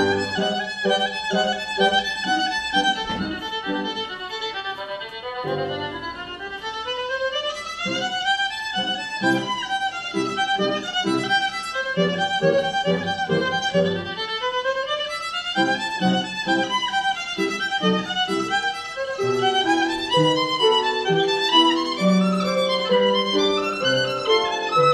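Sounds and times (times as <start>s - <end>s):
piano chords: 0.0s - 7.0s, 7.8s - 14.3s, 15.6s - 24.9s
violin melody: 0.0s - 24.9s.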